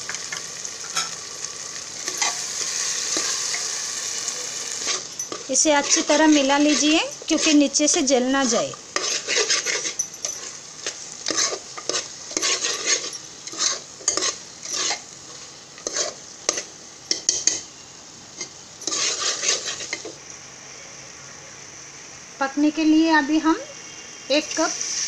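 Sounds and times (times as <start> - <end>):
low sizzle: 0.0 - 25.0
metal spoon scraping a pot: 4.8 - 7.7, 8.4 - 15.0, 15.8 - 17.6, 18.4 - 20.1.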